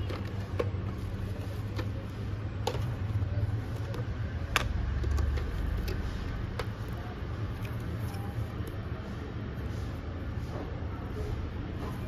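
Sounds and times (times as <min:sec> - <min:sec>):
plastic clicks and taps: 0:00.0 - 0:01.0, 0:02.6 - 0:03.0, 0:03.8 - 0:06.0.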